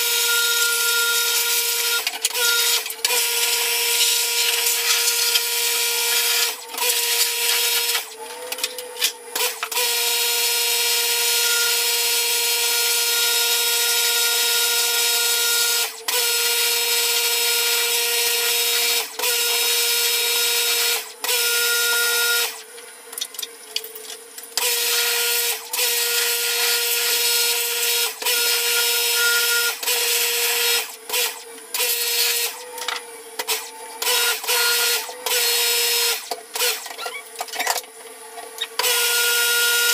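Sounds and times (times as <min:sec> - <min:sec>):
pressure washer motor whine: 0:00.0 - 0:36.8.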